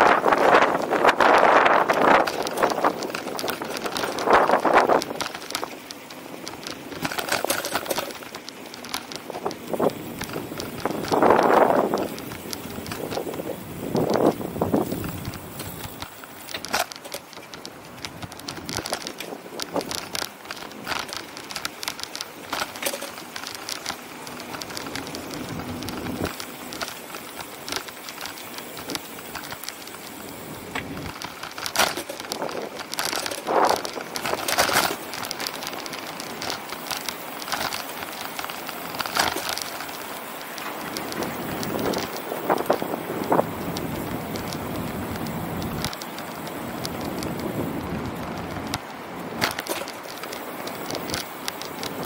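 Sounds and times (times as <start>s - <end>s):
bicycle clicks and rattles: 0.0s - 52.0s
steady rushing noise: 0.0s - 52.0s.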